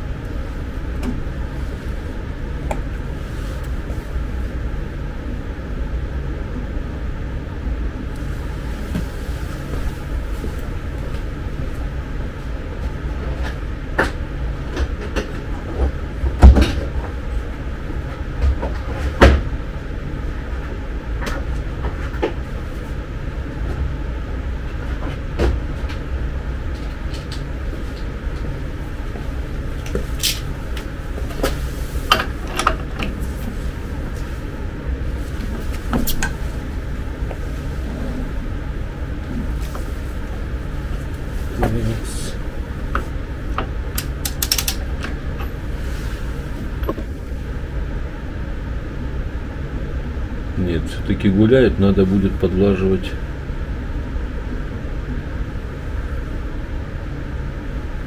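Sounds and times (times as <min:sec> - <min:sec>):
steady low hum: 0:00.0 - 0:58.0
metal tool clicks and knocks: 0:44.2 - 0:44.8.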